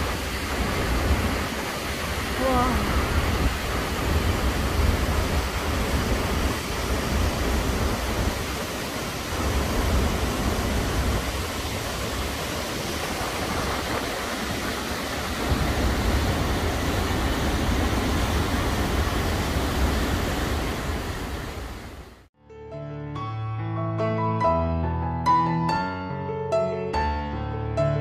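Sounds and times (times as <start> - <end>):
waterfall roaring: 0.0 - 22.3.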